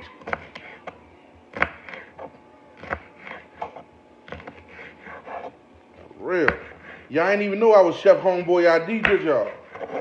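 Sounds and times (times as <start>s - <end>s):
knife striking cutting board: 8.9s - 10.0s.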